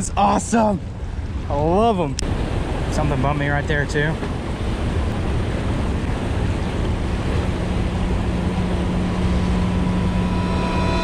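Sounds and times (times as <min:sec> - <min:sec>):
low steady hum: 0:03.9 - 0:11.0.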